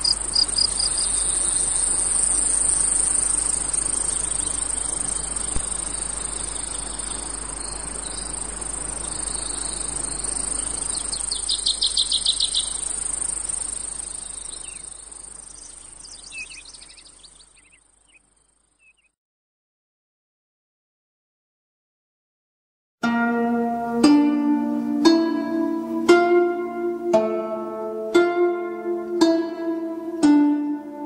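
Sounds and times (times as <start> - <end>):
insects trilling: 0.0 - 19.1
pulsed insect chirps: 0.0 - 19.1.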